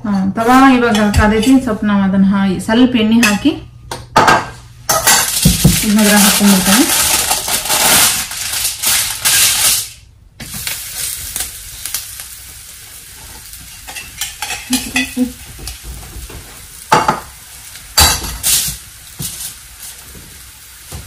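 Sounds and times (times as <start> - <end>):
flatbread sizzling: 4.9 - 21.0.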